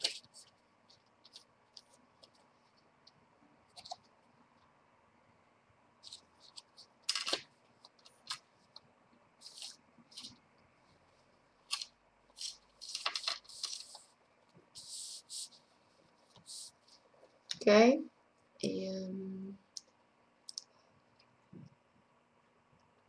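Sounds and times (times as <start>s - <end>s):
paper rustling: 0.0s - 2.9s, 3.8s - 4.0s, 6.0s - 8.8s, 9.4s - 10.4s, 11.7s - 17.1s
paper clicks and taps: 6.1s - 8.4s.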